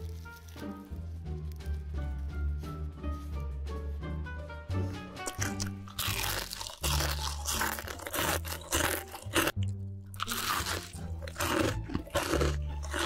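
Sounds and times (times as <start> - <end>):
background music: 0.0 - 13.0
person chewing crunchy food: 5.2 - 13.0.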